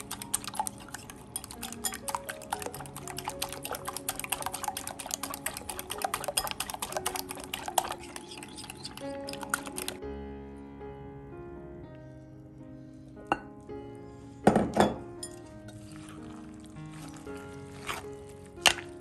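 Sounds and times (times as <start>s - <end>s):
fork beating eggs in glass bowl: 0.0s - 10.0s, 15.3s - 19.0s
soft background music: 0.0s - 19.0s.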